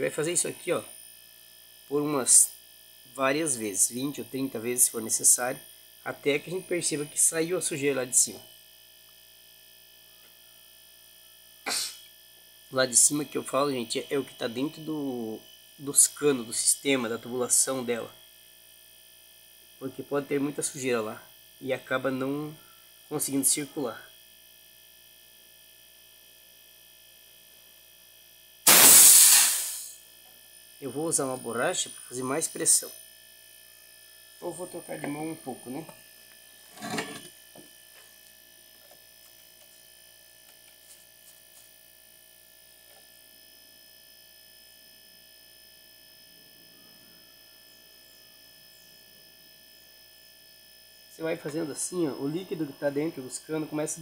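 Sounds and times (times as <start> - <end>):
refrigerator compressor humming: 0.0 - 54.0
compressed air hissing: 11.7 - 12.1, 28.7 - 30.0
thin high steady tones: 34.3 - 39.9.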